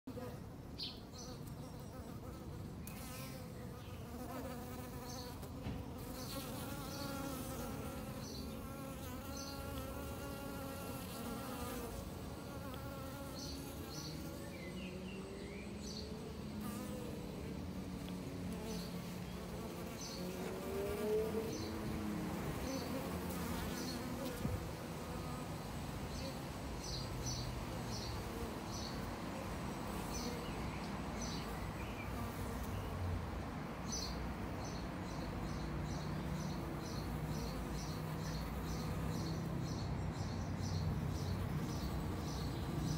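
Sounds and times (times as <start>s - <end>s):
honeybees buzzing: 0.0s - 33.0s.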